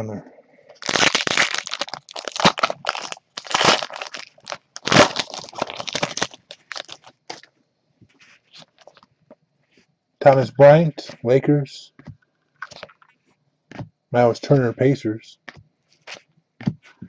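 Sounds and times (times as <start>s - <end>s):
plastic wrapper crinkling: 0.8s - 7.5s, 8.5s - 9.1s.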